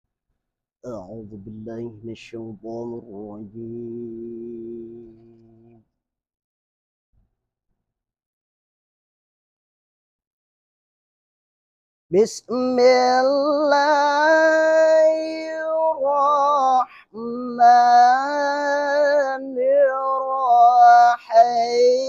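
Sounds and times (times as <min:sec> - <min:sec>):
man chanting melodic recitation: 0:00.9 - 0:05.8, 0:12.1 - 0:22.0.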